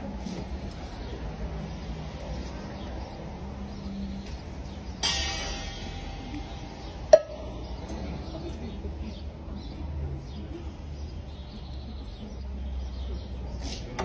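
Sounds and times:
low outdoor rumble: 0.0s - 12.7s
sharp ringing knock: 5.0s - 8.4s.

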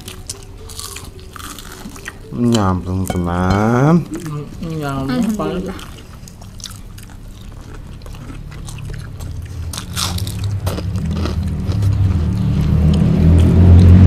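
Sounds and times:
crunchy bites and chewing: 6.4s - 14.0s
motor engine: 9.3s - 14.0s.

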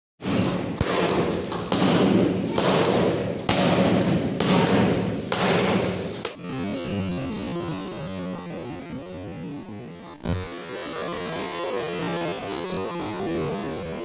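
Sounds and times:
kicks smacking kick paddles: 0.2s - 6.4s.

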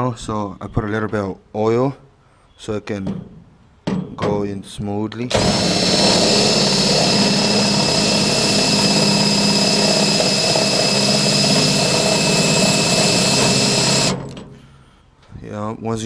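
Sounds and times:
power drill whining: 5.3s - 14.6s.

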